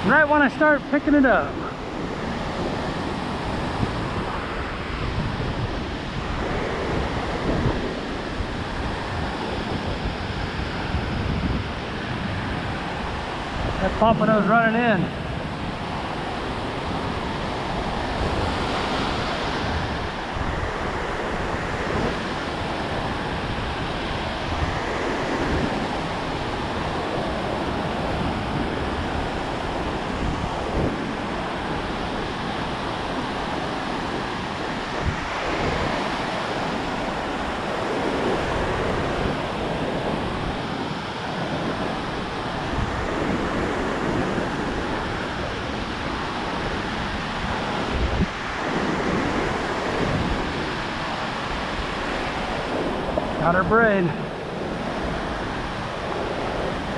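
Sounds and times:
ocean surf breaking on beach: 0.0 - 56.9
wind on microphone: 0.0 - 56.9.

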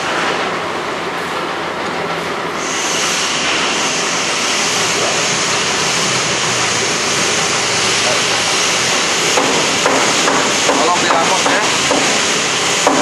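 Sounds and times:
process kettle whooshing: 2.6 - 10.2.

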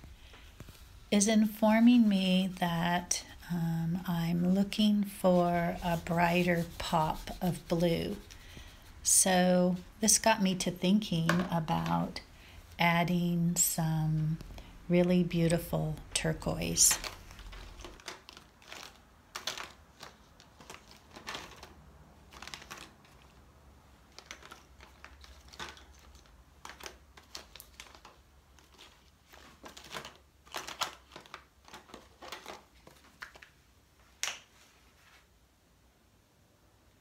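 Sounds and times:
paintbrush strokes on paper: 3.9 - 12.2.

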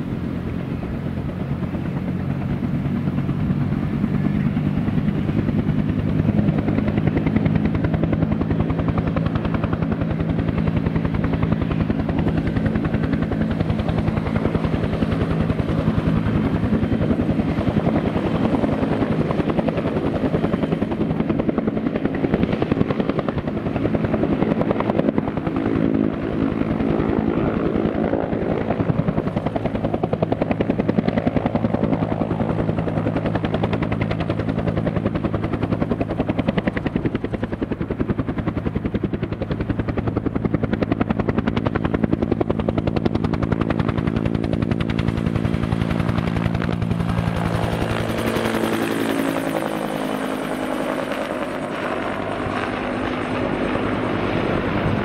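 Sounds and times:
helicopter rotor beating: 0.0 - 55.0
turbine engine drone: 51.0 - 55.0.

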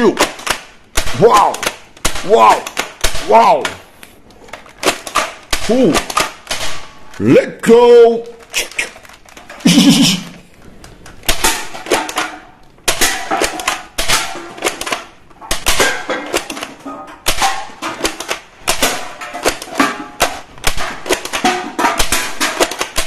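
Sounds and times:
toy gun rapid plastic clicks: 0.0 - 3.3, 4.5 - 6.8, 8.4 - 9.7, 12.9 - 23.0.

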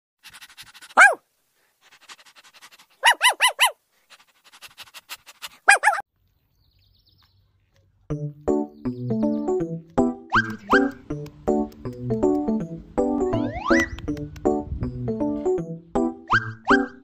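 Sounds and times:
small dog yelping: 0.8 - 1.2, 3.0 - 3.8, 5.6 - 6.1, 16.3 - 17.0.

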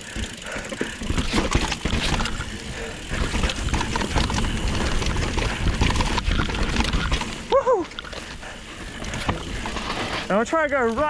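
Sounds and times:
bike rattling and knocking: 0.0 - 11.0
tyres crunching over dirt: 0.2 - 11.0
wind rumbling on microphone: 1.1 - 7.5.

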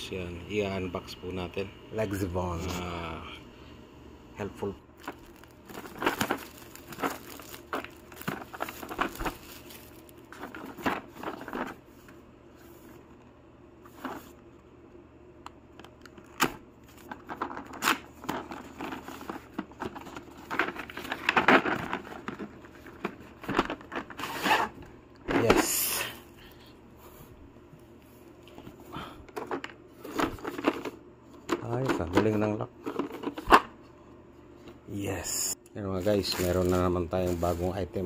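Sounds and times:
plastic shrink wrap crinkling: 5.0 - 11.8, 35.8 - 38.0
plastic case scraping: 17.3 - 24.8.

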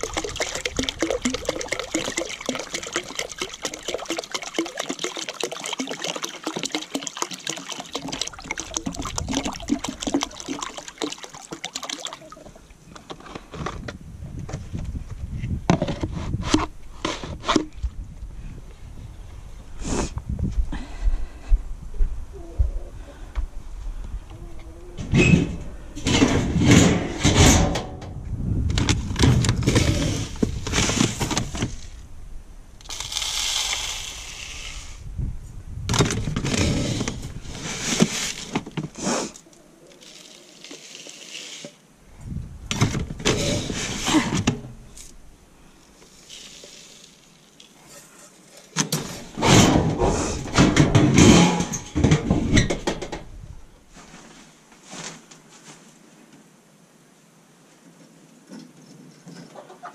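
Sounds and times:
feed poured into plastic feeder: 0.0 - 12.4, 32.8 - 35.0, 46.2 - 47.4
metal bins and lids clattering: 25.1 - 28.2, 47.8 - 53.2.

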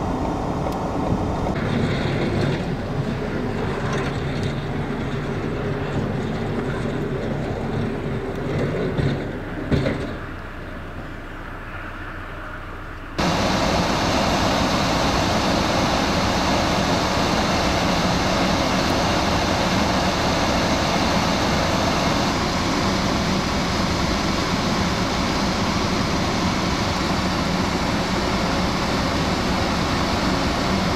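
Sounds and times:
steady rushing noise: 0.0 - 9.9, 11.3 - 30.9
truck engine and road rumble: 0.0 - 30.9.

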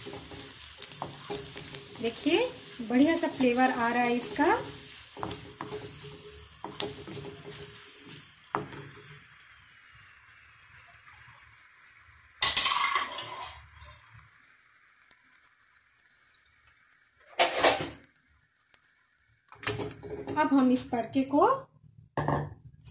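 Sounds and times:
wooden spatula scraping pan: 0.0 - 9.2, 19.8 - 20.7
spices sizzling in hot oil: 0.0 - 22.9.

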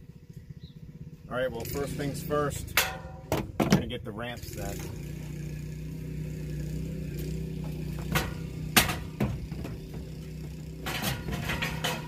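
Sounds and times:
metal ramp knocking on tailgate: 2.8 - 3.9, 7.9 - 12.0.

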